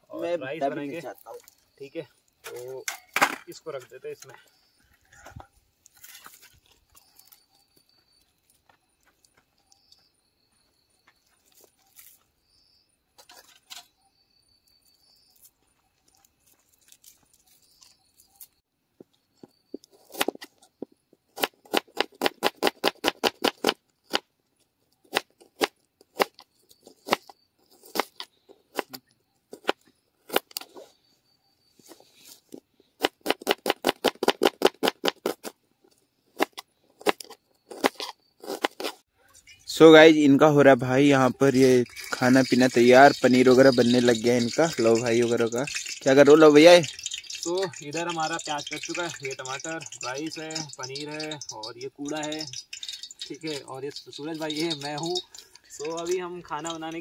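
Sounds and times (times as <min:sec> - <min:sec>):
faint clicks: 0:44.1 - 0:56.2.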